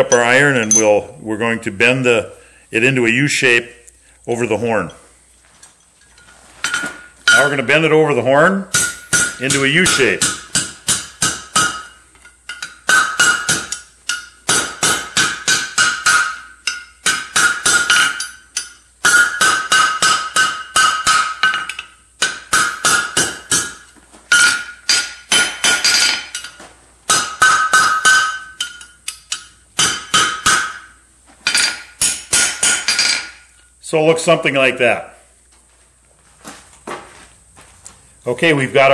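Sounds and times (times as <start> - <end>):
anvil ringing: 0.0 - 1.1, 8.7 - 33.5
hammer striking hot steel: 8.7 - 33.6.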